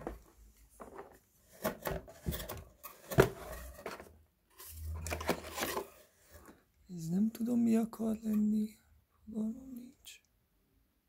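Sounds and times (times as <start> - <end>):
plastic items rustling in cardboard box: 0.0 - 6.6.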